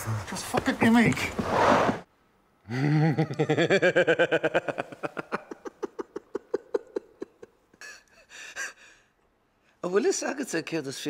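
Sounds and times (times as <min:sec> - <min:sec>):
man laughing: 0:02.7 - 0:09.0.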